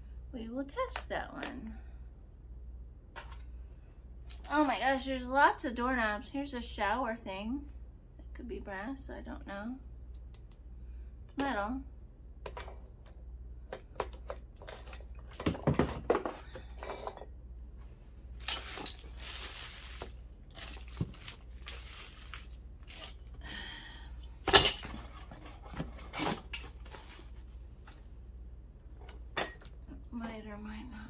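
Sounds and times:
rustling: 17.8 - 23.4.

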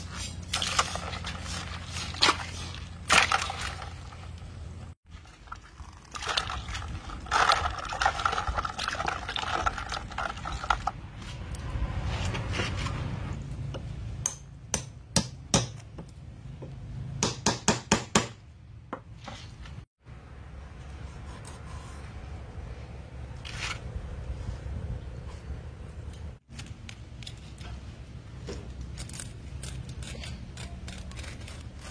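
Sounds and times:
eels and ice shifting in water: 0.4 - 4.4, 5.0 - 11.0.

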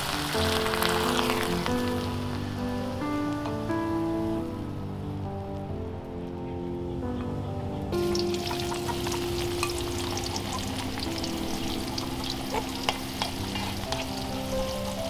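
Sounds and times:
oil crackling and popping: 0.0 - 2.1, 8.0 - 15.0
shallots sizzling in hot oil: 0.0 - 2.7, 8.0 - 15.0
chopsticks stirring in a wok: 11.8 - 15.0.

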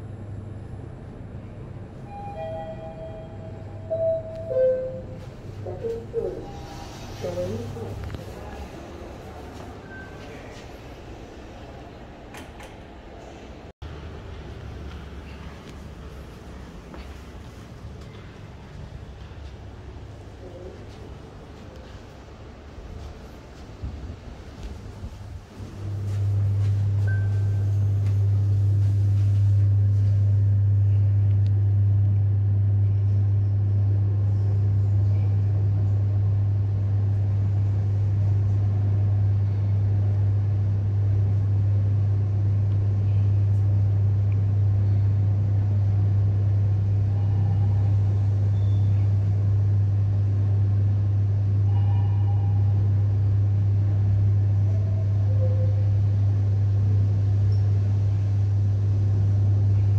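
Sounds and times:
lift car hum and rumble: 0.0 - 59.9
faint short tones: 2.0 - 7.4.

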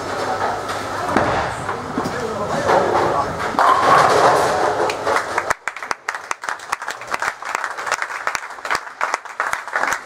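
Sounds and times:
spectators applauding: 4.9 - 10.0.

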